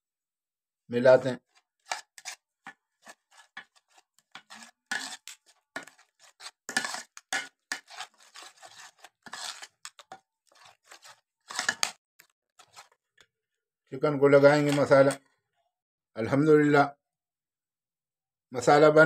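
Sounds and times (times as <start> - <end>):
metal spoons scraping ceramic bowl: 1.5 - 12.0.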